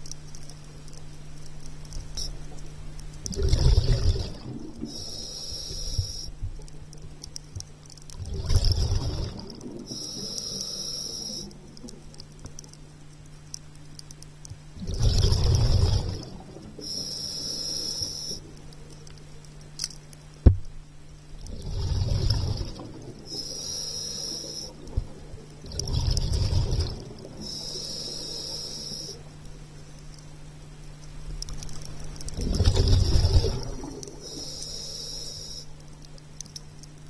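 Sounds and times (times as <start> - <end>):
steady low hum: 0.0 - 37.0
exhaled bubbles rushing: 3.3 - 4.9, 8.2 - 10.0, 14.8 - 16.8, 21.4 - 23.4, 24.8 - 27.5, 32.3 - 34.2
regulator inhalation hiss: 4.8 - 6.4, 9.9 - 11.6, 16.8 - 18.5, 23.3 - 24.8, 27.4 - 29.3, 34.1 - 35.8.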